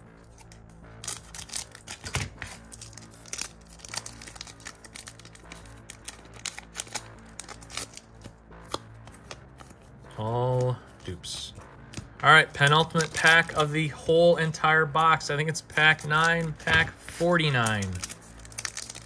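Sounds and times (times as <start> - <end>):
quiet background music: 0.0 - 19.0
card pack crinkling torn open: 0.2 - 9.8, 11.9 - 13.7, 15.7 - 19.0
cards flipped through: 0.2 - 13.7, 14.4 - 19.0.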